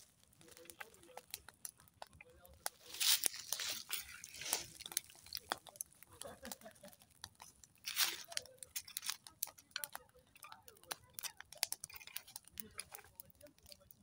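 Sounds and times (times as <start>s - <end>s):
wood fire crackling and popping: 0.0s - 14.0s.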